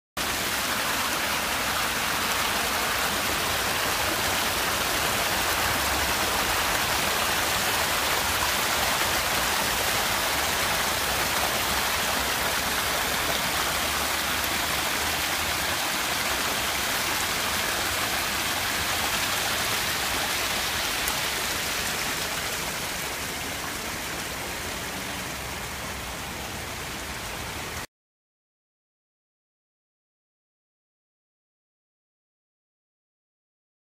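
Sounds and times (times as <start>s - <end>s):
water rushing and splashing: 0.2s - 27.9s.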